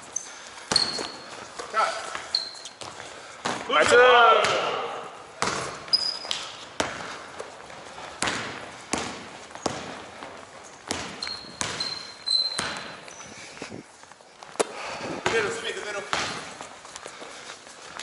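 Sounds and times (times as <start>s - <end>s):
sneaker squeaks: 0.0s - 3.7s, 4.4s - 14.6s
basketball bouncing on gym floor: 0.7s - 13.2s, 15.1s - 16.6s.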